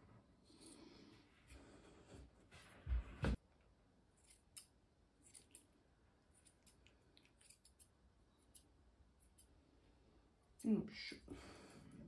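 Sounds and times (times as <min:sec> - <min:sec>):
scissors snipping fur: 0:04.2 - 0:05.7, 0:06.3 - 0:09.6.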